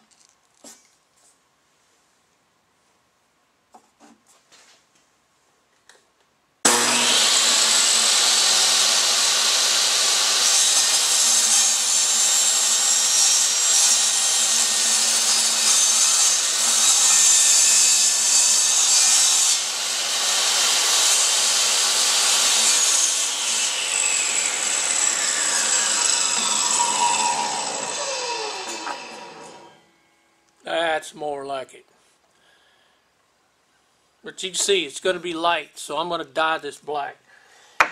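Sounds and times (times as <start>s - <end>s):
table saw ripping wood: 6.7s - 29.8s.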